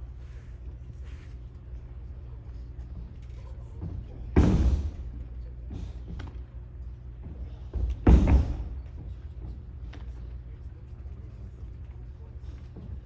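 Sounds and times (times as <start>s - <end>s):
heavy thuds of breakfalls on mat: 3.8s - 5.1s, 7.2s - 9.2s.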